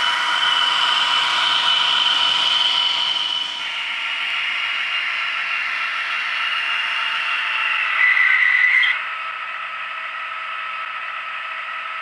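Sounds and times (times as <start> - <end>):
high squeal: 0.0 - 9.1.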